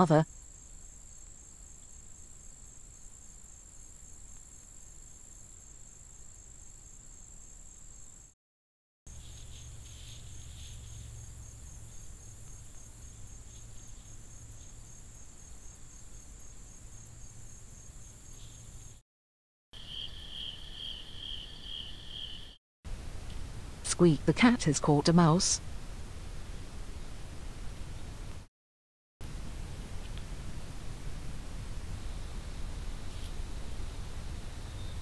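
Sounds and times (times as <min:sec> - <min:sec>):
pulsing cricket chirping: 0:00.3 - 0:08.4, 0:09.1 - 0:19.0, 0:19.8 - 0:22.6, 0:31.8 - 0:35.0
high-pitched insect trilling: 0:19.8 - 0:22.6.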